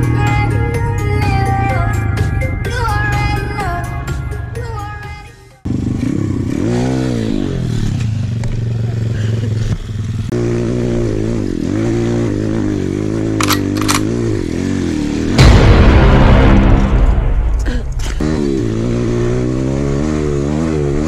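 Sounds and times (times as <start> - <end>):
second dirt bike engine: 5.7 - 15.2
dirt bike engine revving: 5.7 - 15.4, 18.2 - 21.0
sharp clicks: 13.4 - 14.1.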